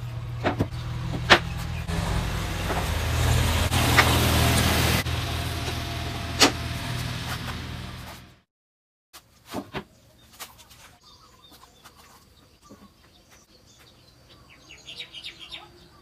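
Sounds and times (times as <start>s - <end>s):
low mechanical hum: 0.0s - 8.4s.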